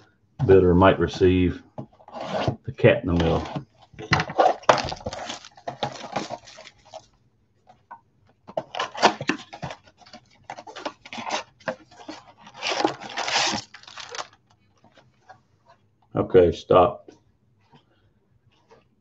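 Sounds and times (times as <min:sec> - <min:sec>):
plastic wrappers crinkling: 0:04.0 - 0:07.1, 0:08.6 - 0:15.0.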